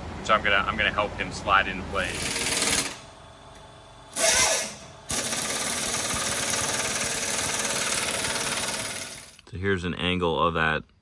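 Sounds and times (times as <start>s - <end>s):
pneumatic impact wrench rattling: 2.1s - 3.0s, 4.1s - 9.4s.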